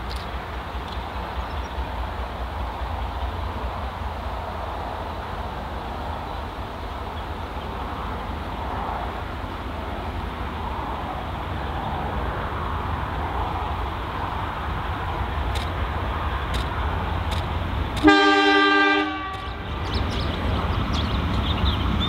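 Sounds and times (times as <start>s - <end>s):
locomotive engine rumble: 0.0s - 22.0s
sharp click: 15.5s - 15.8s, 16.5s - 16.7s, 17.3s - 18.1s.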